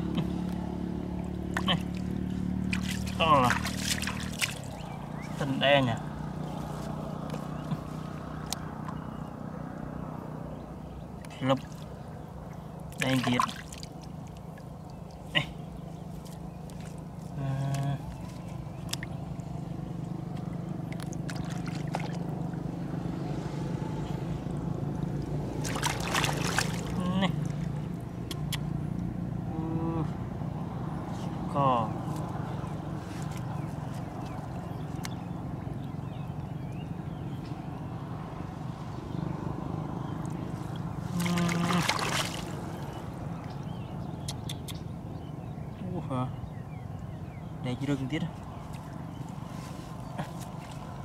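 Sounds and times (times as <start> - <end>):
small engine droning: 0.0 - 51.0
hands squelching in wet mud: 1.3 - 9.0, 12.8 - 22.6, 25.2 - 28.7, 32.0 - 35.3, 40.2 - 43.4, 48.4 - 51.0.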